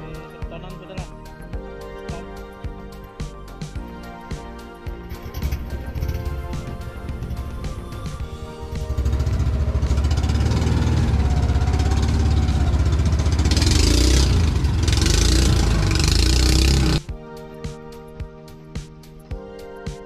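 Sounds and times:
outboard engine throbbing: 0:04.9 - 0:17.0.

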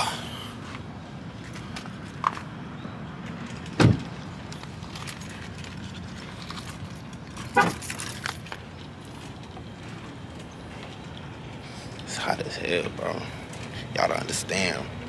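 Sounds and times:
light clicks and rattles: 0:03.2 - 0:12.1.

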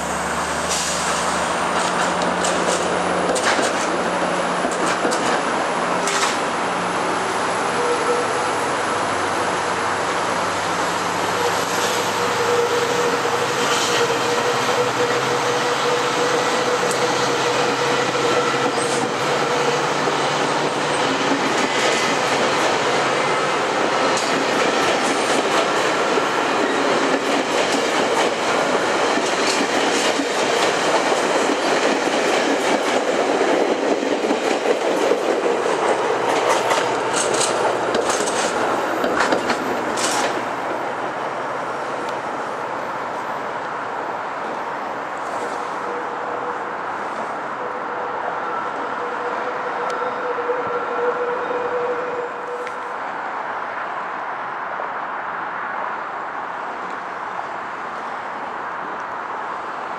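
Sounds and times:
train wheels rumbling on rail: 0:00.0 - 0:53.0
wheels clicking over rail joints: 0:01.7 - 0:04.0, 0:04.6 - 0:06.5, 0:24.1 - 0:40.4.

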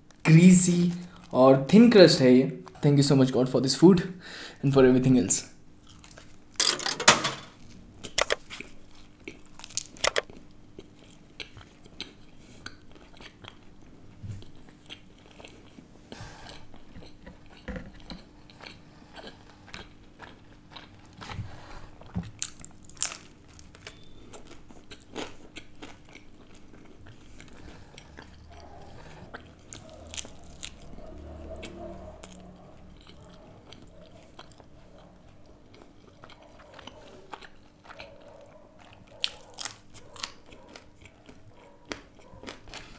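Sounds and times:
chewing: 0:05.8 - 0:06.4, 0:07.6 - 0:42.9
pizza crust crunching: 0:07.6 - 0:13.8, 0:16.5 - 0:31.3, 0:32.2 - 0:42.9.

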